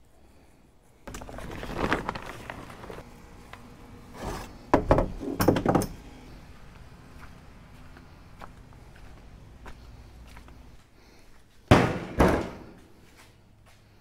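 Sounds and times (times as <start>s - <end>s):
rustling handling noise: 1.0s - 4.5s.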